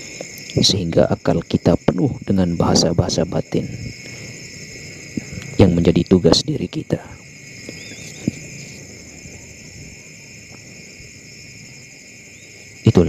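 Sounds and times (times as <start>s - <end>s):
crickets chirping: 0.0s - 13.0s.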